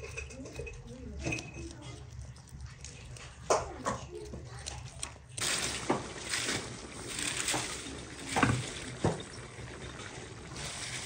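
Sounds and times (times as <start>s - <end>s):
cabbage rustling into a pan: 5.4s - 11.0s.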